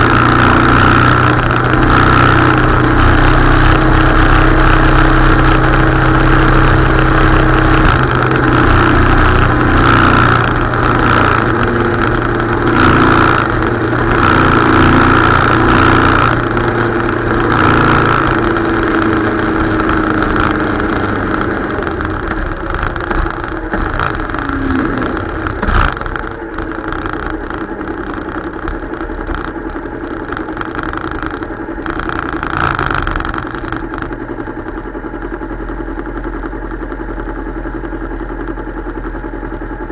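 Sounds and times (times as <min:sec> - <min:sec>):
wind and road noise: 0:00.0 - 0:37.9
motorcycle engine running: 0:00.0 - 0:39.9.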